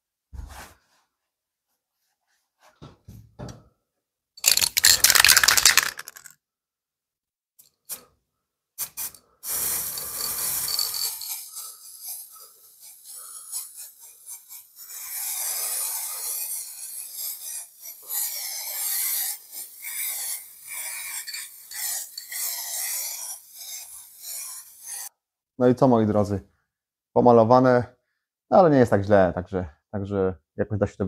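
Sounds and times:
spray can hissing: 4.4s - 6.2s, 8.8s - 25.1s
spray can rattling: 4.4s - 6.4s, 8.8s - 25.1s.

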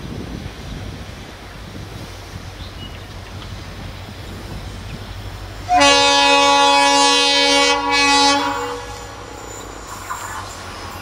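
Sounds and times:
locomotive air horn chord: 5.7s - 10.0s.

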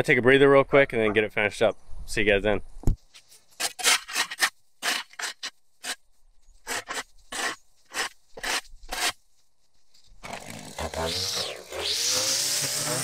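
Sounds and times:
shovel scraping concrete: 3.5s - 6.0s, 6.6s - 9.2s.

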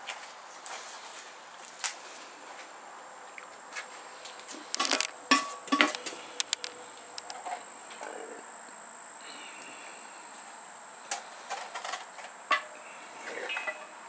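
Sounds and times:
palm pieces clinking on steel pot: 4.8s - 6.6s.

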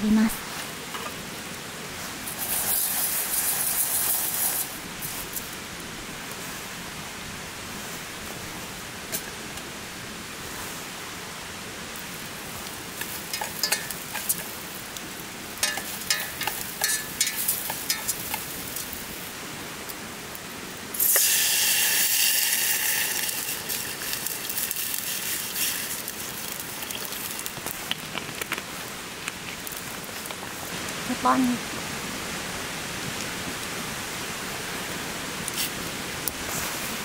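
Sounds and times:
water hissing in hot pot: 2.0s - 5.6s, 12.0s - 19.4s, 20.9s - 27.9s
food sizzling in a pot: 2.2s - 5.5s, 12.1s - 19.3s, 20.9s - 27.9s.

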